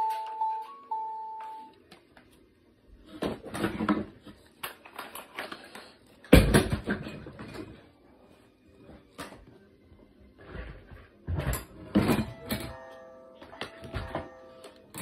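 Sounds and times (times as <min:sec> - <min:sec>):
electronic toy beeping tune: 0:00.0 - 0:01.7.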